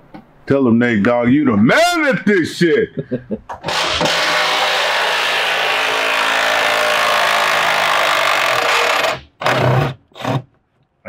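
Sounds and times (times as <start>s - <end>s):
power tool motor running: 3.6s - 10.4s.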